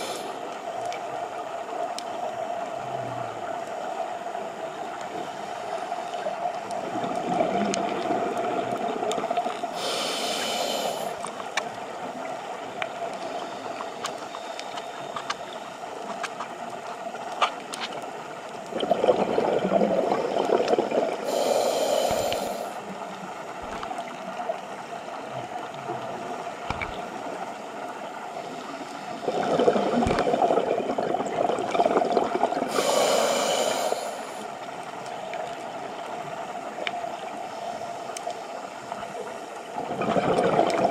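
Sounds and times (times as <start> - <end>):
underwater rumble: 0.0 - 40.9
bubbles gurgling: 6.8 - 9.4, 18.7 - 22.5, 29.2 - 33.2, 39.8 - 40.9
regulator hissing: 9.8 - 11.2, 32.7 - 34.5.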